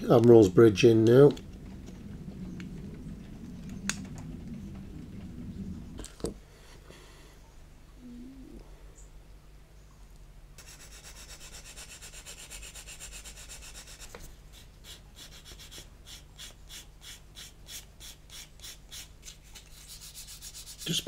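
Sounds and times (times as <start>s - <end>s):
sanding stick scraping plastic: 10.6s - 21.0s.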